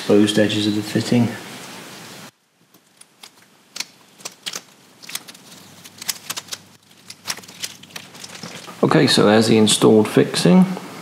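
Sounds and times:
masking tape peeling crackles: 2.6 - 8.9.

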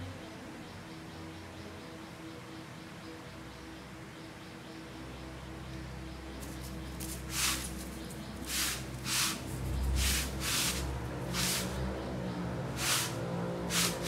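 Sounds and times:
kitten hissing: 10.0 - 11.8, 12.8 - 14.0.

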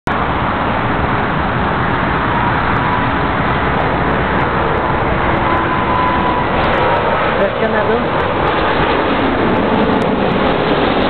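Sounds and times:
jet airliner engines rumbling: 0.1 - 11.0.

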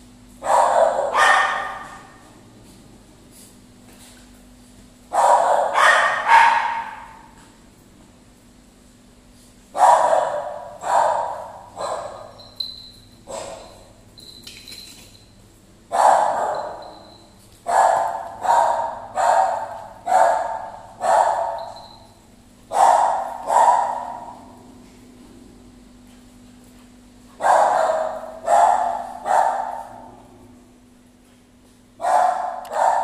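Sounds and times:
dog barking: 0.4 - 2.2, 5.1 - 7.3, 9.7 - 12.4, 13.3 - 13.7, 15.9 - 16.9, 17.7 - 21.8, 22.7 - 24.4, 27.4 - 30.1, 32.0 - 33.0.

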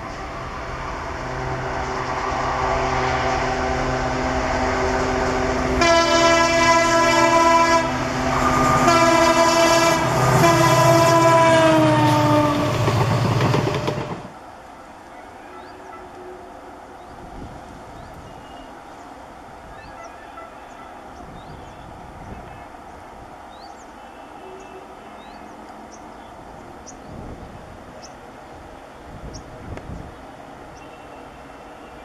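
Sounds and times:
diesel locomotive engine: 0.0 - 32.0
train horn blasts: 1.3 - 14.1, 23.9 - 25.6, 30.8 - 32.0
wheels clattering over rail joints: 12.4 - 14.4.

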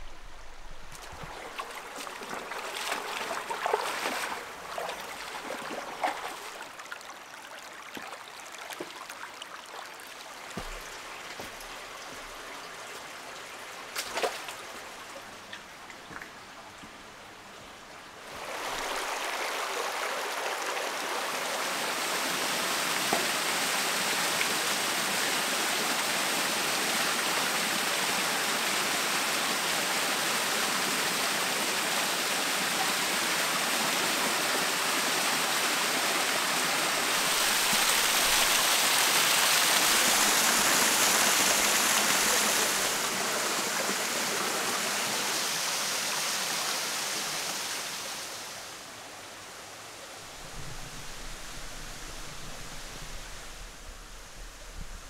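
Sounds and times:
river water rushing over rocks: 0.0 - 12.6, 18.2 - 55.0.

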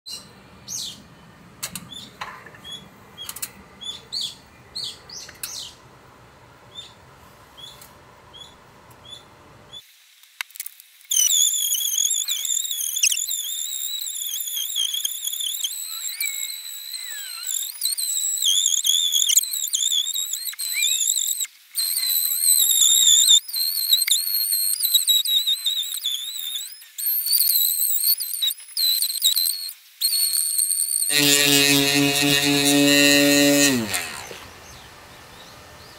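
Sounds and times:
cicada song: 11.1 - 34.9.

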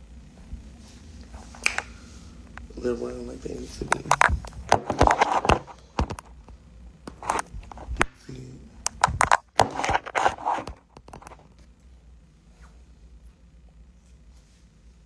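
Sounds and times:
phone handling rustling and scraping: 3.9 - 6.4, 7.1 - 7.9, 9.0 - 11.5.

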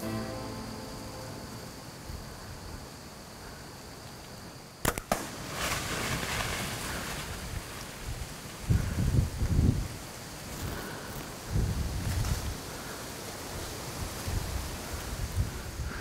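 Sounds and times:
steady wind: 0.0 - 16.0
bowstring snap: 4.8 - 5.3
sharp crack: 4.8 - 6.4.

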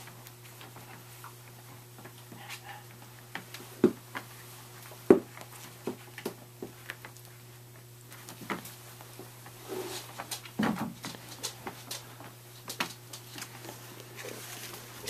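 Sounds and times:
puppies knocking toys: 10.2 - 12.1.

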